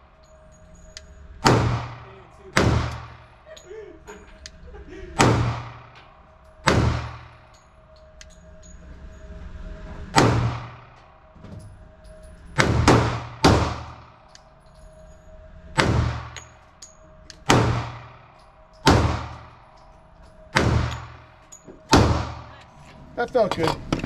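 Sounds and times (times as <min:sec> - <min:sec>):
pistol shots echoing indoors: 0:01.0 - 0:03.5, 0:04.4 - 0:08.4, 0:10.1 - 0:11.4, 0:12.0 - 0:14.7, 0:15.7 - 0:22.8.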